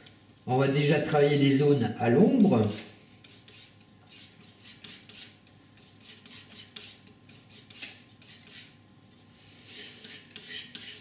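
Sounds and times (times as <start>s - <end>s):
painting knife scraping paint: 2.6s - 11.0s.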